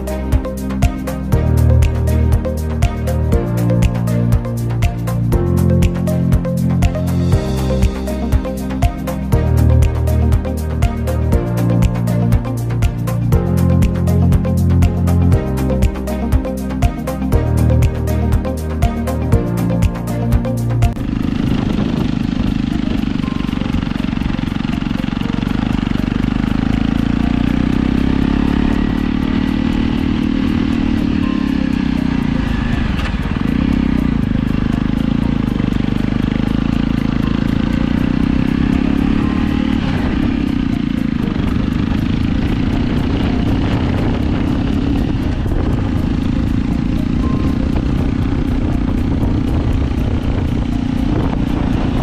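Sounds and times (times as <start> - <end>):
motorcycle engine under load: 20.8 - 52.0
wind rush on microphone: 21.0 - 24.4, 39.8 - 52.0.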